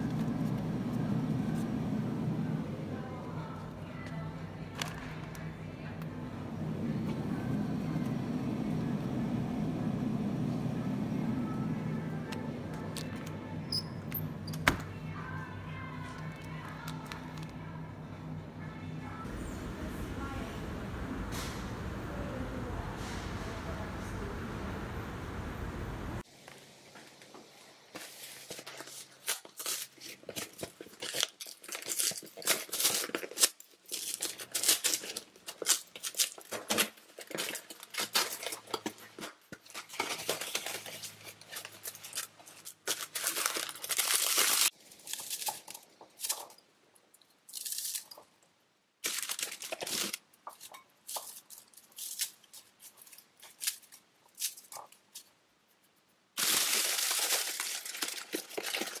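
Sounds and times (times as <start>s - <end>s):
plastic wrapper crinkling and tearing: 28.0s - 46.6s, 47.2s - 48.3s, 49.0s - 55.3s, 56.4s - 59.0s.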